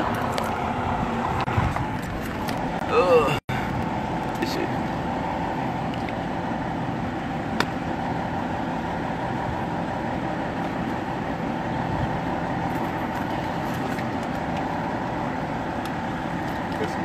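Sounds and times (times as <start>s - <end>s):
vehicle engine idling: 0.0s - 17.0s.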